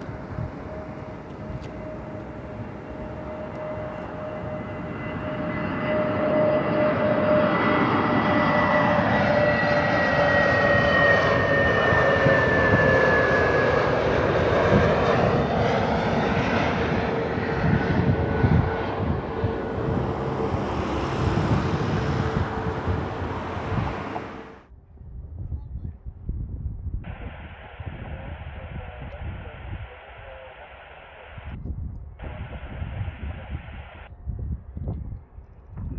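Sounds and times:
jet airliner engines whining: 0.0s - 24.7s.

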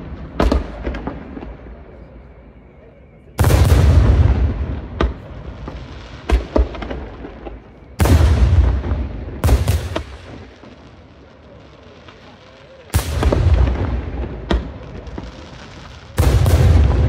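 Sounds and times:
deep rolling boom: 16.2s - 17.0s.

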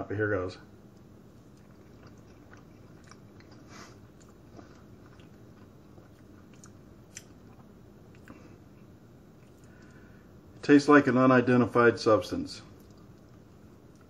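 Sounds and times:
mouth chewing clicks: 0.9s - 8.4s, 12.8s - 14.0s.

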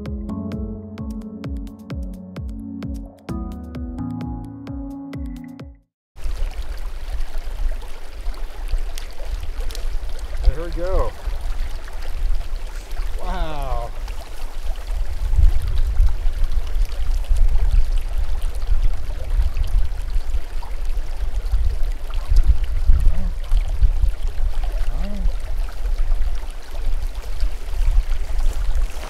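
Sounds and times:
creek running: 6.2s - 29.0s
wind buffeting microphone: 6.2s - 29.0s.

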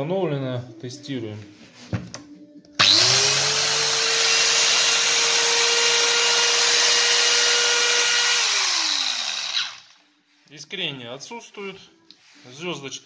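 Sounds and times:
electric chainsaw motor whine: 2.8s - 10.0s.

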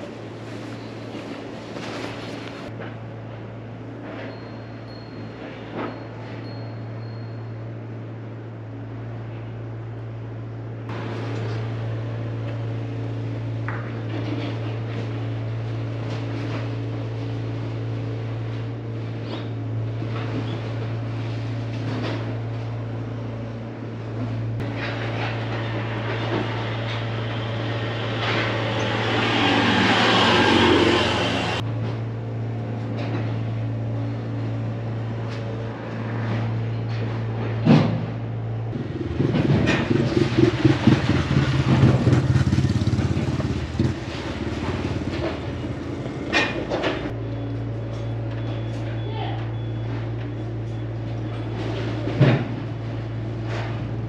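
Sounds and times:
vehicle passing: 27.0s - 31.6s.

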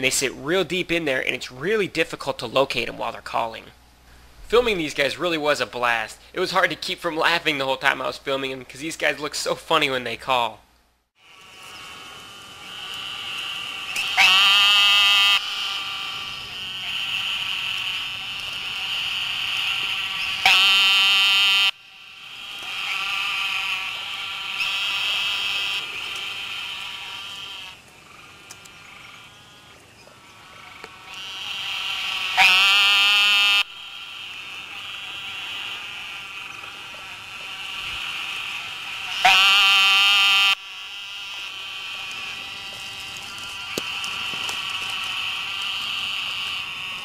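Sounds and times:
toads calling in chorus: 11.2s - 47.0s.

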